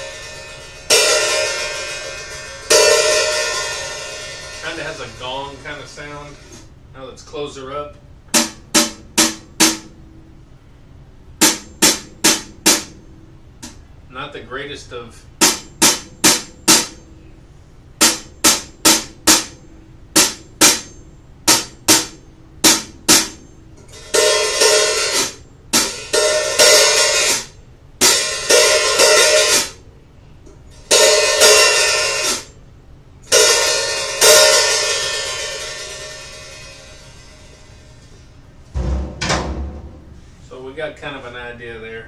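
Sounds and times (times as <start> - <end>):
hi-hat cymbals struck: 0.0 - 6.8, 11.3 - 13.8, 15.3 - 29.8, 30.7 - 32.6, 33.2 - 39.3.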